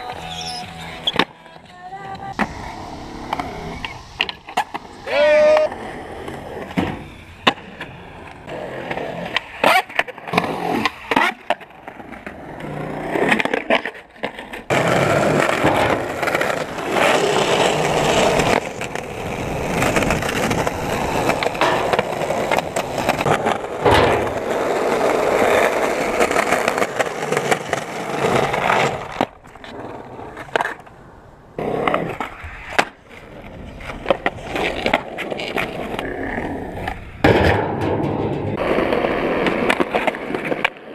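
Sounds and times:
skateboard clacks: 0.0s - 31.0s, 31.6s - 40.9s
skateboard wheels rolling: 0.0s - 40.9s.

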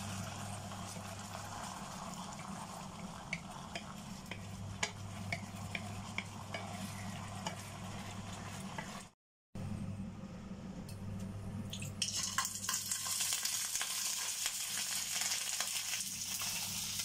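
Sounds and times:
sauce simmering and sizzling: 0.0s - 9.2s, 12.2s - 17.0s
wooden spatula scraping a pan: 2.4s - 9.2s.

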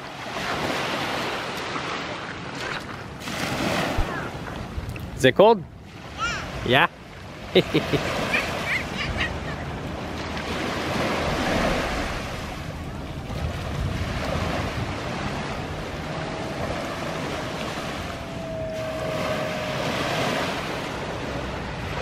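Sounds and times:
waves washing onto beach: 0.0s - 22.0s
wind buffeting microphone: 8.8s - 22.0s
faint steady drone: 14.7s - 22.0s.

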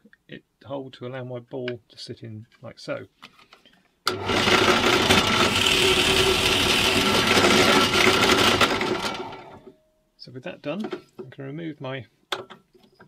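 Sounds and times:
drill press humming and whining: 4.1s - 9.6s.

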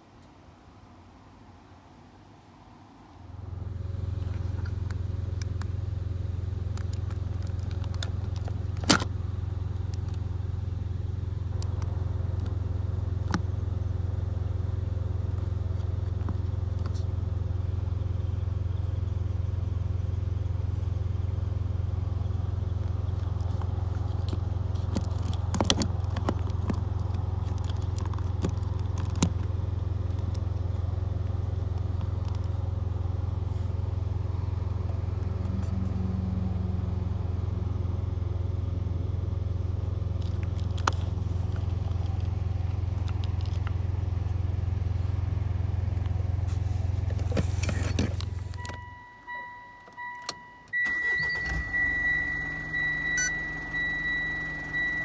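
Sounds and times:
low hum inside car: 0.0s - 55.0s
handling clicks and knocks: 23.2s - 30.5s
car electronic chime beeping: 48.6s - 55.0s.

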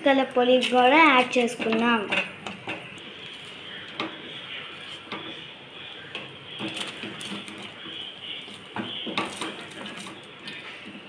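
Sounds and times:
wooden spatula scraping steel pan: 6.2s - 11.0s.

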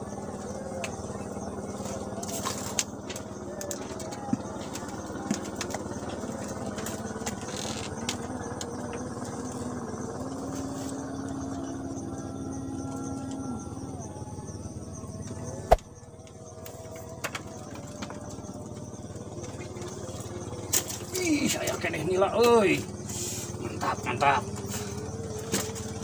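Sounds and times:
droning hum shifting pitch: 0.0s - 26.0s.

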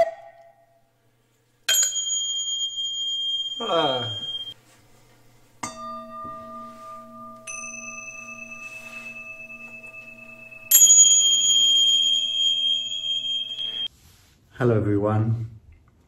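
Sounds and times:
struck bells ringing: 1.7s - 4.6s, 5.6s - 13.9s.

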